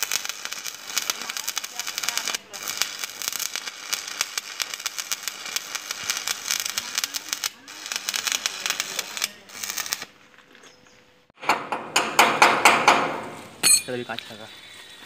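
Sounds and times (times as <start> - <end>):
welding arc crackling: 0.0 - 10.2.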